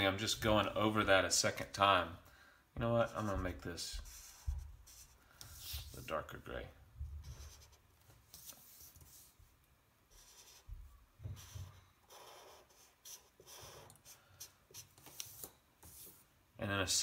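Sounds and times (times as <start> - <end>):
felt-tip marker rubbing on paper: 3.0 - 6.0, 10.1 - 16.2.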